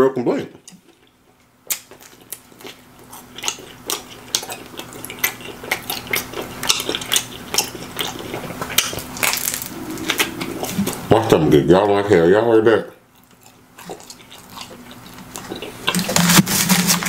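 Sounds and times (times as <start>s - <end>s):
pizza crust crunching: 0.7s - 11.1s, 13.2s - 17.0s
wet mouth clicks: 3.4s - 11.1s.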